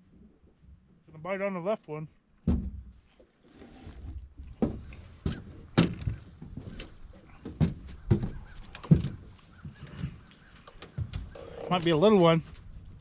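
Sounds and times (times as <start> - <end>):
footsteps on boat deck: 4.2 - 11.6.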